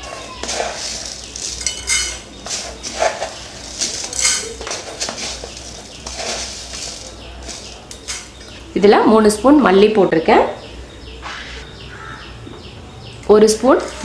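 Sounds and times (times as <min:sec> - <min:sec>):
seeds rattling into metal pan: 0:00.0 - 0:08.5
metal cookware clattering: 0:00.0 - 0:08.6.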